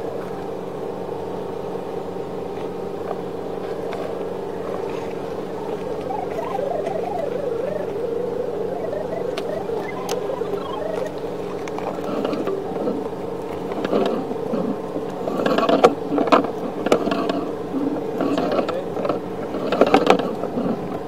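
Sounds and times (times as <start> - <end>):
steady hum: 3.4 - 16.4.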